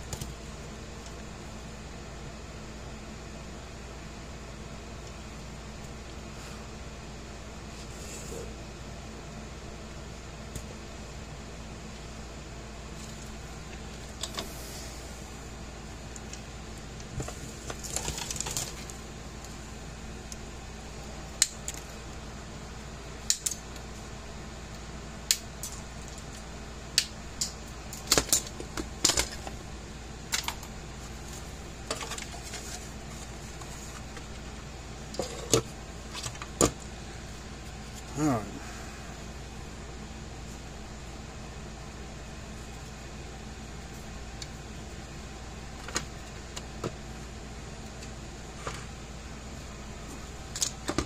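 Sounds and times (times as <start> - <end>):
steady low hum: 0.0 - 51.0.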